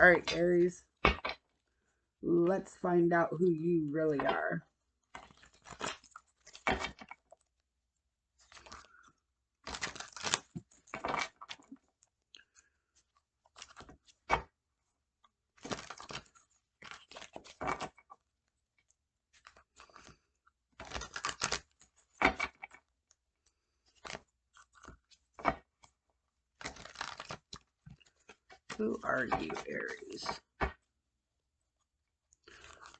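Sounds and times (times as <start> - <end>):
cards shuffling: 9.6 - 11.6, 15.6 - 18.0, 20.8 - 22.6, 23.9 - 25.6, 26.6 - 30.8.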